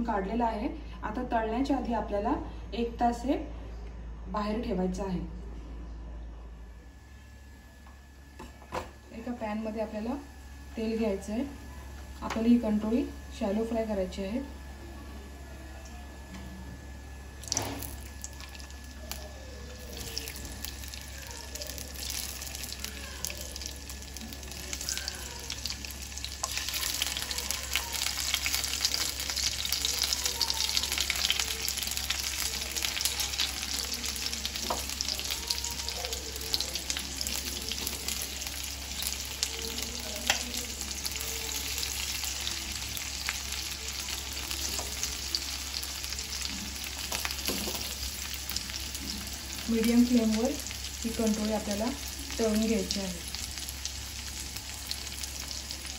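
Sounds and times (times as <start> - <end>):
food sizzling in oil: 17.2 - 55.9.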